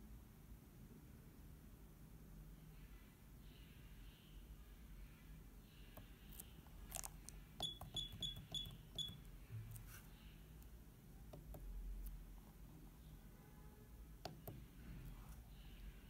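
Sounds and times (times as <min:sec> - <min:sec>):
short high beeps: 0:07.6 - 0:09.2.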